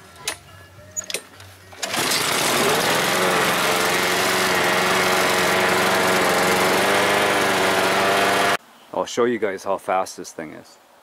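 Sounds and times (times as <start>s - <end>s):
lawn mower engine running: 1.7s - 8.6s.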